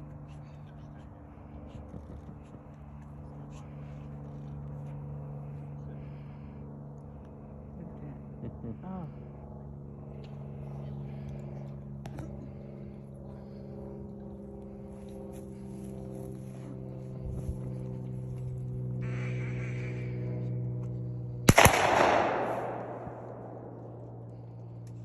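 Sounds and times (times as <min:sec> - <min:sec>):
steady low hum: 0:00.0 - 0:25.0
shotgun shot with echo: 0:21.5 - 0:23.8.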